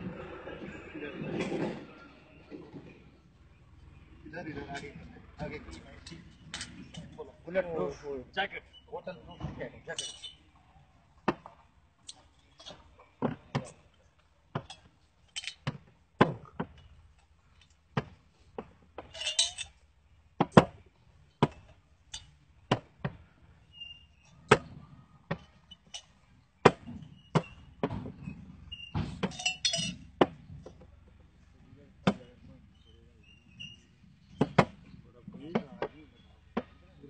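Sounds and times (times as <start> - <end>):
bottles clattering together: 9.9 - 10.4, 14.5 - 15.8, 19.0 - 19.8, 29.0 - 30.3
glass bottles clinking on table: 9.9 - 10.4, 19.0 - 19.8, 29.1 - 30.1.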